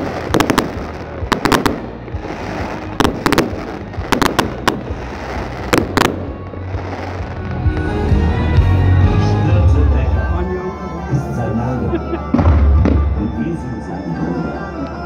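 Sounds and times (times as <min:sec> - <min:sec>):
fireworks bangs: 0:00.0 - 0:07.9, 0:12.2 - 0:13.4
music with heavy bass: 0:00.0 - 0:13.6.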